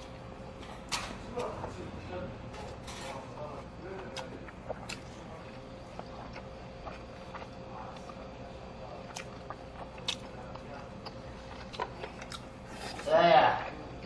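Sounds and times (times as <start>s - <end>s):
steady background hum: 0.0s - 14.0s
person chewing: 2.7s - 13.2s.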